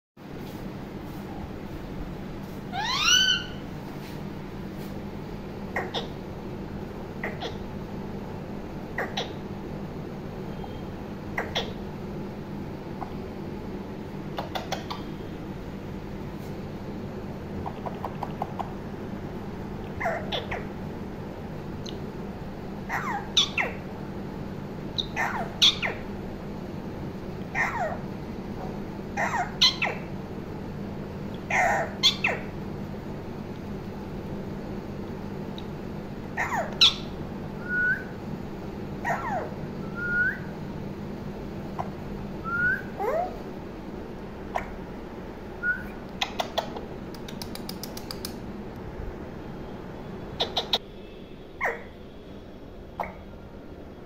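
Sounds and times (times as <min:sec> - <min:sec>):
parakeet chirping: 0:02.7 - 0:03.7, 0:05.7 - 0:06.2, 0:07.2 - 0:07.7, 0:09.0 - 0:09.4, 0:10.6 - 0:11.8, 0:14.3 - 0:15.2, 0:19.9 - 0:20.8, 0:22.8 - 0:23.9, 0:25.0 - 0:26.1, 0:27.5 - 0:28.0, 0:28.6 - 0:30.1, 0:31.4 - 0:32.6, 0:36.3 - 0:38.1, 0:39.0 - 0:40.5, 0:50.3 - 0:50.8, 0:51.6 - 0:51.9
sharp click: 0:46.2 - 0:48.4.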